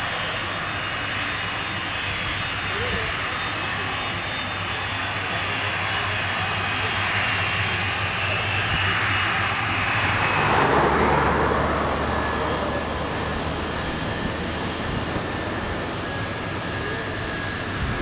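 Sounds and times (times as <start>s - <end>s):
jet passing with deep rumble: 7.1s - 18.0s
jet engines whining: 8.1s - 18.0s.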